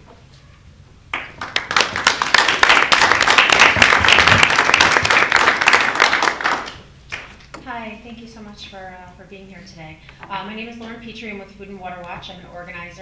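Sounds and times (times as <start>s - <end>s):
audience applauding: 1.1s - 7.3s.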